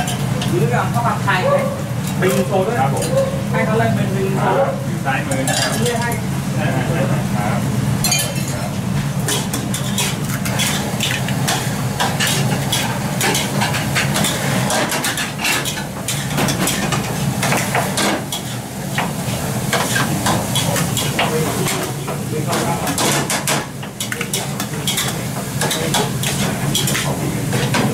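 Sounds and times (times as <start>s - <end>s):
food sizzling: 0.0s - 27.9s
spatulas scraping woks: 8.0s - 27.9s.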